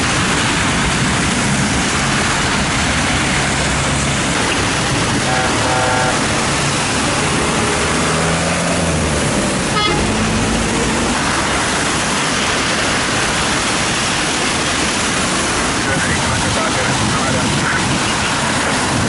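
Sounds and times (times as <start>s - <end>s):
passing traffic engines: 0.0s - 19.0s
rain hiss: 0.0s - 19.0s
tyres on wet road: 0.0s - 19.0s
car horn: 5.0s - 6.4s, 9.7s - 10.2s.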